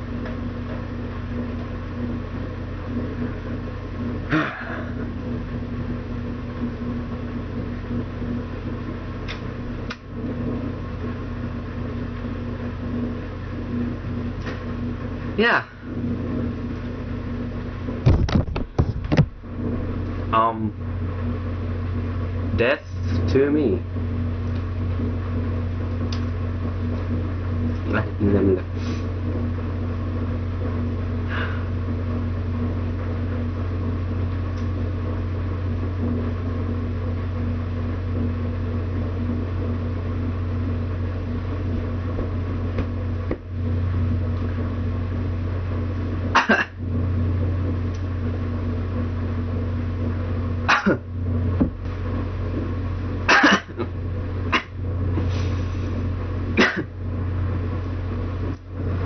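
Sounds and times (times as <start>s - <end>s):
low electrical hum: 0.0s - 59.0s
man coughing and clearing throat: 4.3s - 5.1s, 46.3s - 46.8s, 50.7s - 51.1s, 53.3s - 53.9s, 54.5s - 54.8s, 56.6s - 57.0s.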